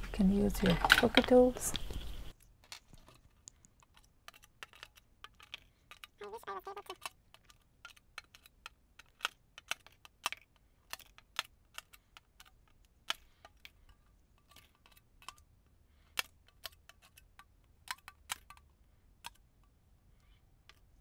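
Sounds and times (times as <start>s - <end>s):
metal tool clicking and tapping: 16.2s - 19.8s.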